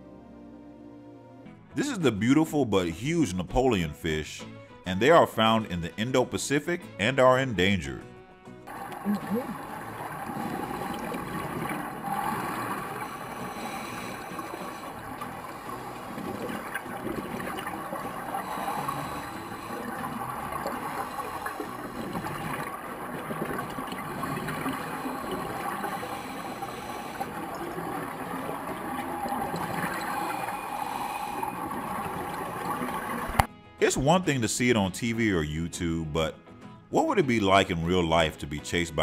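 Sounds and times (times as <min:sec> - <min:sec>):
faint steady hum: 0:08.7 - 0:33.5
gurgling sloshing water: 0:08.7 - 0:33.5.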